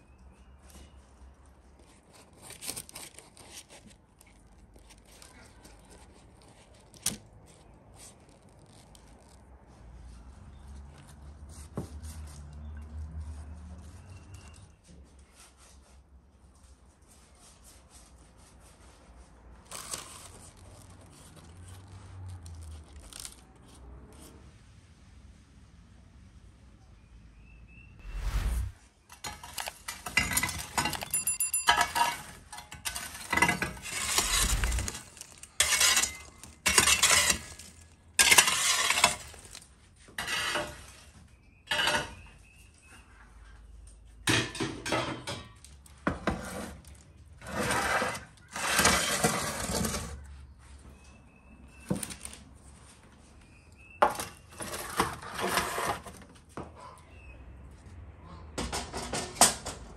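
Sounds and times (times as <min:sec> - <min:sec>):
iron shovel scraping over brick: 0:28.0 - 0:42.4, 0:47.4 - 0:50.2, 0:54.1 - 0:56.2.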